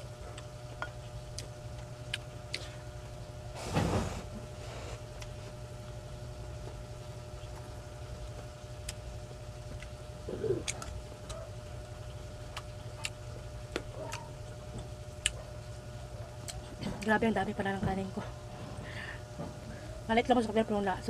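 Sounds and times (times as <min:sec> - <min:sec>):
chewing rice: 0:00.0 - 0:03.2, 0:05.1 - 0:17.1
steady low hum: 0:00.0 - 0:21.0.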